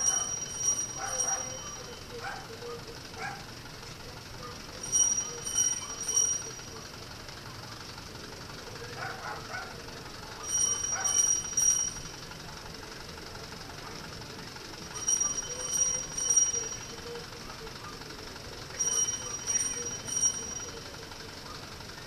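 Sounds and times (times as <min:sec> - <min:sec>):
small metal bell strikes: 0:00.0 - 0:02.5, 0:04.7 - 0:06.9, 0:10.4 - 0:12.2, 0:14.8 - 0:17.3, 0:18.7 - 0:21.2
street noise hum: 0:00.0 - 0:22.0.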